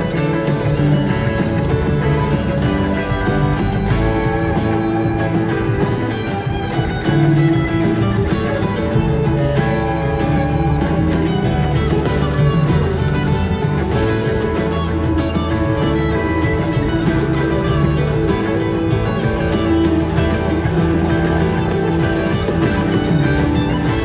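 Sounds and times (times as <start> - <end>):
electric guitar: 0.0 - 24.0
live rock band jamming: 0.0 - 24.0.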